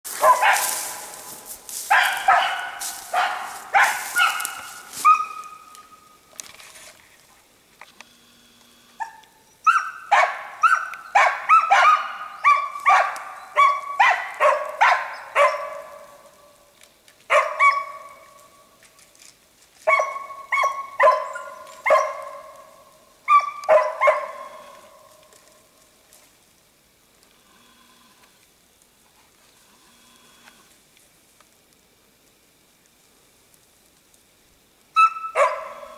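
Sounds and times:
dog barking: 0:00.1 - 0:01.1, 0:01.9 - 0:05.6, 0:09.0 - 0:16.2, 0:17.3 - 0:18.2, 0:19.8 - 0:22.7, 0:23.3 - 0:25.1, 0:35.0 - 0:35.9.

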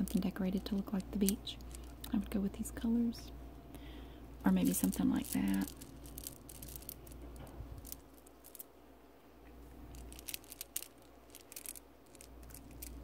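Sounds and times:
glass marbles clinking: 0:04.6 - 0:07.2.

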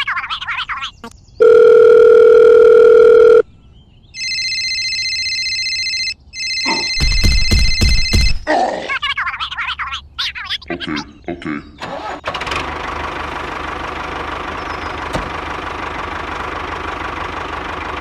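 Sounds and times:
electronic phone ring: 0:01.4 - 0:03.4, 0:04.2 - 0:08.4
steady single-pitched phone tone: 0:01.4 - 0:03.4, 0:04.2 - 0:08.3
knocks: 0:07.0 - 0:08.4.

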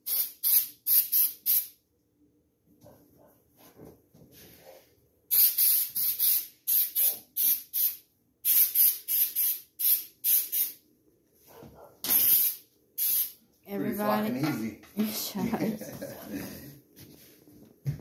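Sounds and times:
spray bottle squirting: 0:00.0 - 0:01.8, 0:05.3 - 0:10.8, 0:12.1 - 0:13.4.

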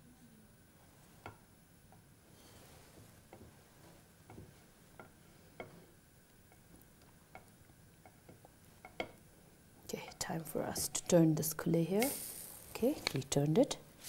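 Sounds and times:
pancake ticking and popping in pan: 0:04.2 - 0:09.3.

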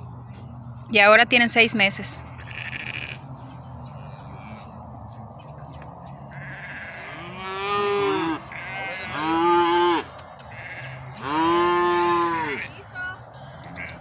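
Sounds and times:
calf bawling: 0:02.3 - 0:04.8, 0:06.3 - 0:12.8.

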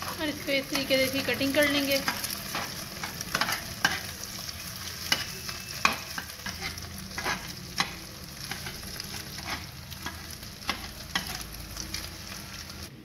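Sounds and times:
metal utensil scraping frying pan: 0:00.0 - 0:12.9
eggs sizzling: 0:00.0 - 0:13.0.

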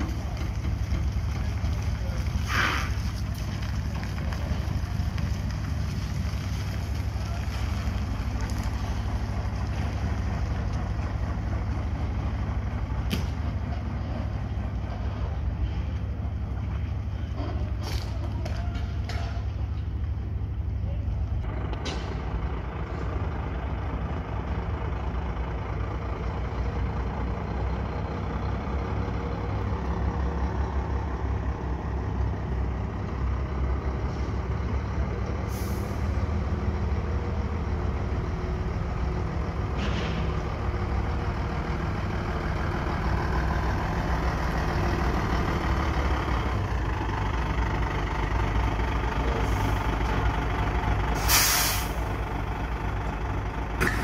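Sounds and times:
diesel truck engine running: 0:00.0 - 0:54.0
air brake hisses: 0:02.5 - 0:03.0, 0:35.5 - 0:36.1, 0:51.2 - 0:52.0.

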